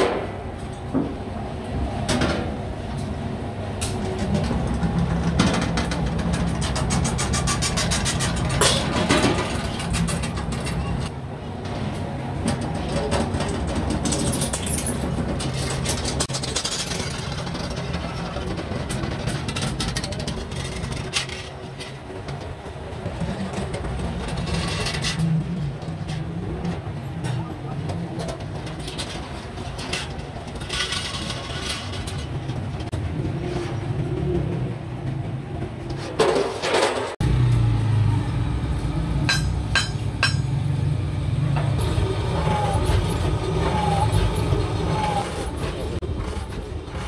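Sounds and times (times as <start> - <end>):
steel sheet clanking and rattling: 3.8 - 11.1, 12.4 - 22.6, 23.2 - 32.9, 36.1 - 37.2, 39.3 - 40.6
shear machine humming: 41.8 - 45.7.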